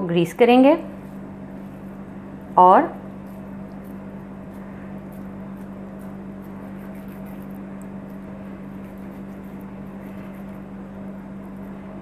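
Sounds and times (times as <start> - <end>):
room noise hiss: 0.0 - 12.0
steady low hum: 0.0 - 12.0
hands shaping minced meat: 3.1 - 12.0.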